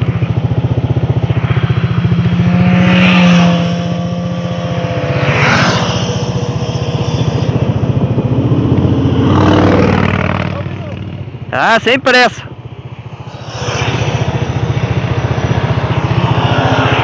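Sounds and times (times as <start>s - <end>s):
scooter engine idling: 0.0s - 2.7s
motorcycles riding past: 0.0s - 17.0s.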